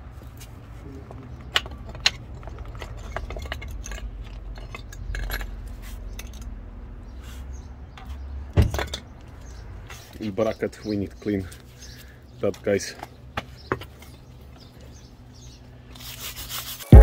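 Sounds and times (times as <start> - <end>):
metal brake parts clinking: 1.2 - 6.6, 7.9 - 10.2.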